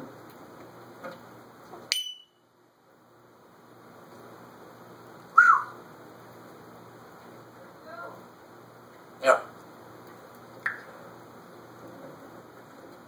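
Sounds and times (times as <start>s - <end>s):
parrot whistled note: 1.9s - 2.3s, 5.4s - 5.8s.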